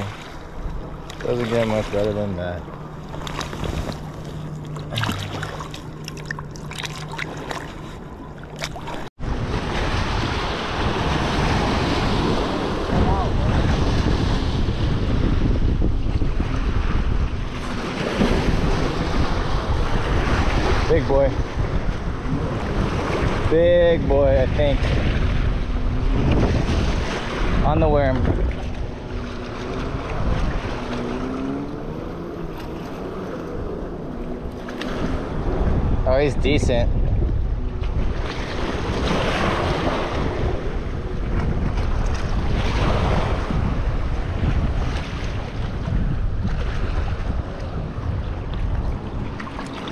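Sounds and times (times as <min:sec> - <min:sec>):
wind buffeting microphone: 0:00.0 - 0:49.9
small waves lapping on rocks: 0:01.0 - 0:02.6
water splashing and dripping: 0:03.2 - 0:09.1
waves breaking on rocky shore: 0:26.2 - 0:31.6, 0:38.2 - 0:48.0.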